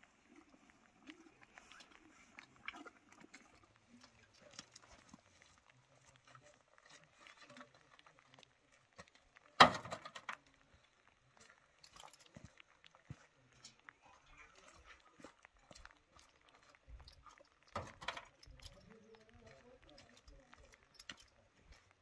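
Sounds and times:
horse chewing: 0.2s - 9.0s.

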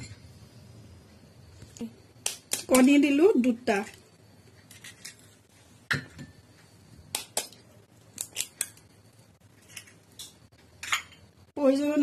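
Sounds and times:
spoon tapping and cracking eggshells: 7.2s - 8.9s.

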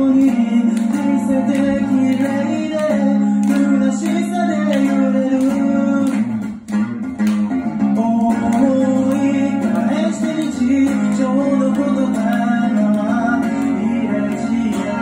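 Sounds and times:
man singing into a microphone: 0.0s - 6.4s, 7.8s - 15.0s
electric guitar strumming: 0.0s - 15.0s.

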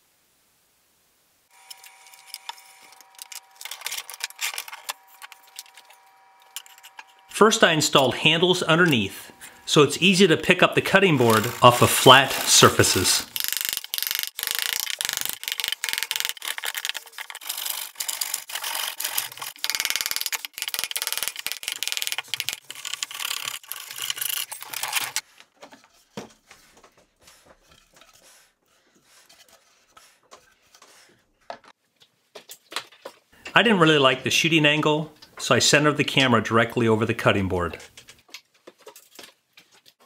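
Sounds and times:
hand tools scraping wood: 1.5s - 31.8s.

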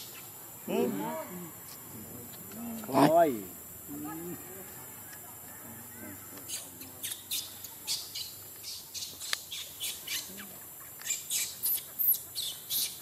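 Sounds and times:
high-pitched chirping calls: 6.5s - 13.0s.

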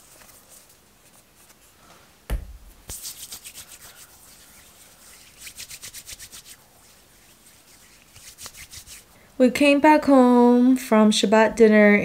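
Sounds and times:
hands rubbing over skin: 0.0s - 1.7s, 2.8s - 9.2s
thump: 2.3s - 2.7s.

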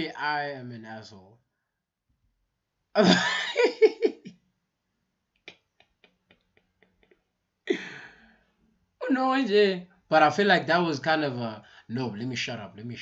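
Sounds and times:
man laughing: 3.0s - 4.3s, 7.7s - 8.1s.

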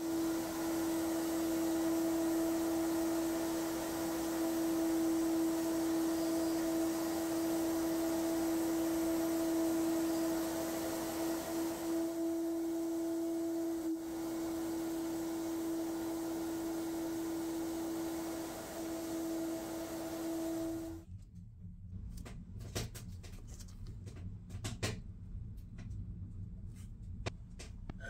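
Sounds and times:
sandblasting air hiss: 0.0s - 21.0s.

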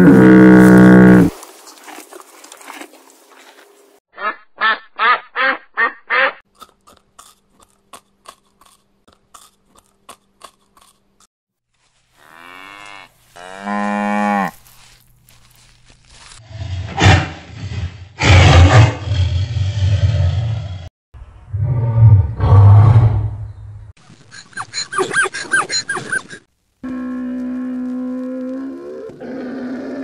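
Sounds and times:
rabbit chewing leaves: 14.5s - 16.4s.

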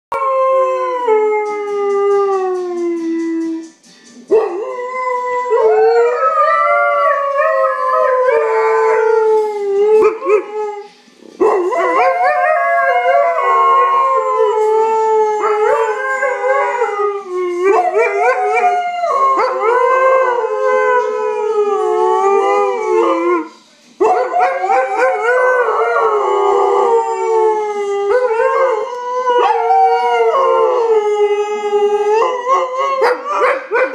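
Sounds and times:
dog howling: 11.4s - 33.9s.

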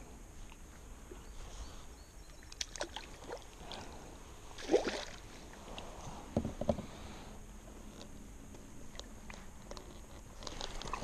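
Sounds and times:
fish splashing in water: 4.6s - 5.3s.

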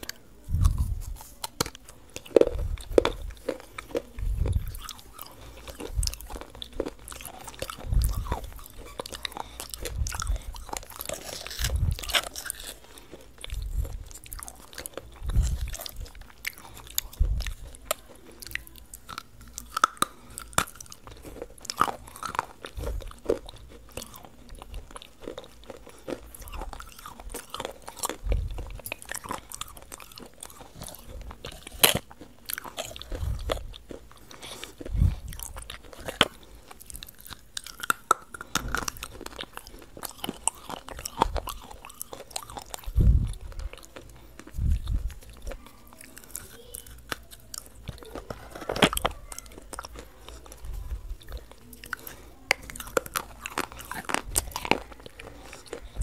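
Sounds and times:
wet chewing: 0.0s - 56.0s
crisp chocolate bar bites: 46.2s - 56.0s.

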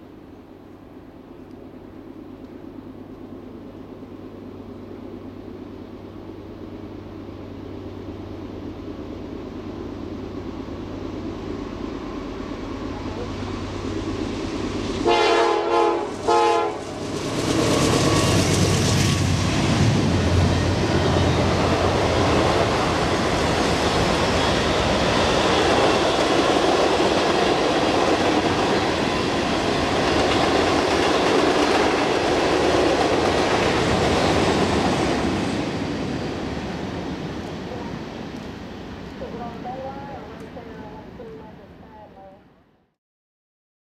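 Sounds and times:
freight car wheel and rail noise: 0.0s - 42.3s
diesel locomotive engine rumble: 0.0s - 42.9s
train horn blasts: 15.0s - 16.9s.

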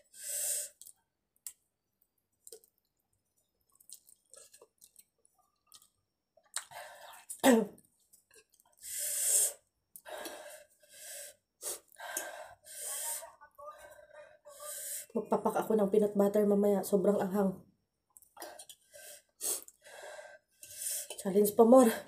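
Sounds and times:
soft chewing clicks: 0.8s - 6.7s.

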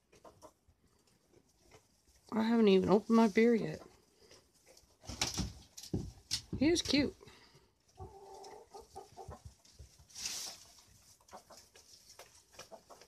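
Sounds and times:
hen clucking: 0.0s - 5.0s, 7.9s - 13.0s
brief rustle: 10.0s - 10.9s.

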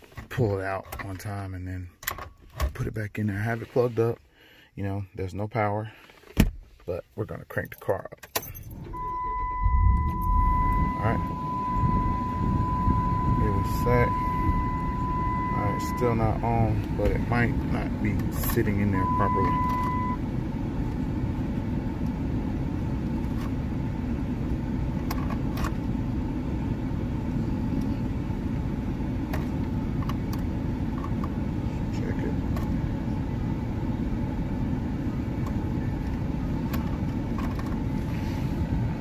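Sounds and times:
truck engine idling: 8.7s - 21.2s.

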